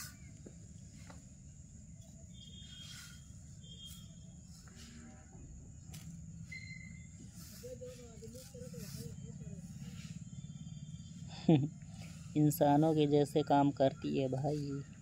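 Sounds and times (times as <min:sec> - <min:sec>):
high insect drone: 0:00.0 - 0:15.0
bird chirps: 0:02.0 - 0:04.4, 0:06.4 - 0:07.4, 0:08.2 - 0:15.0
hand scraping sand on metal: 0:07.2 - 0:10.2.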